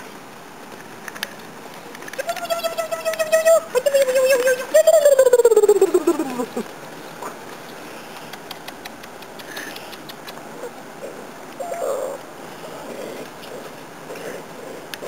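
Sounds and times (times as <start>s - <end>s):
faint clicks and rustling: 0.6s - 4.9s, 5.8s - 10.5s.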